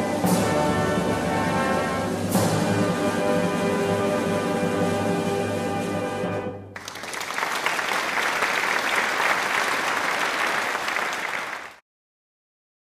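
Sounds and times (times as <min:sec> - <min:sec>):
crowd applauding: 0:06.8 - 0:11.8.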